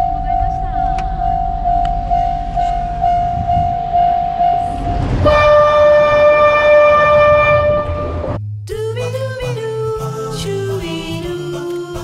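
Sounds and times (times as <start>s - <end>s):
level-crossing electronic bell: 0.0s - 4.9s
low rumble: 0.0s - 10.6s
held horn-like note: 2.1s - 8.4s.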